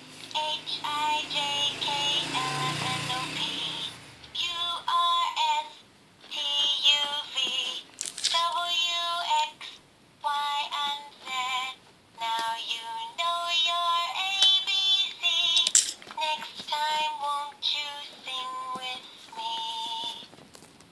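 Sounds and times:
tinny synthesized sung melody: 0:00.3 - 0:05.8.

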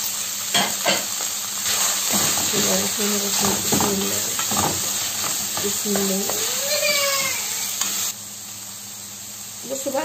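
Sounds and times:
food sizzling in oil: 0:00.0 - 0:10.0
wooden spoon scraping pan: 0:01.7 - 0:06.5.

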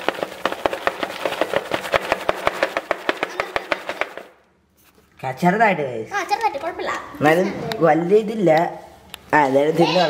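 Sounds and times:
popcorn kernels popping: 0:00.0 - 0:04.4.

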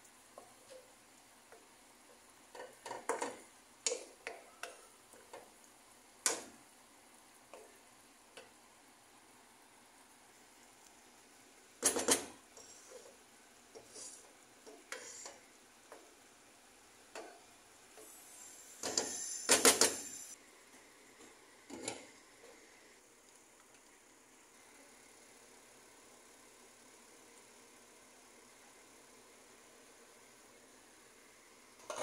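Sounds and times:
faint sizzle: 0:12.4 - 0:32.0.

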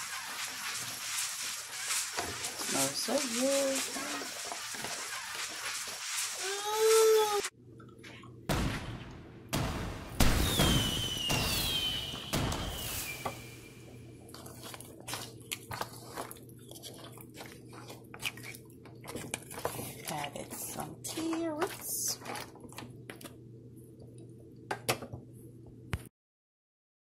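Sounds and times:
wooden spoon scraping a pot: 0:00.0 - 0:07.5, 0:14.3 - 0:22.5.

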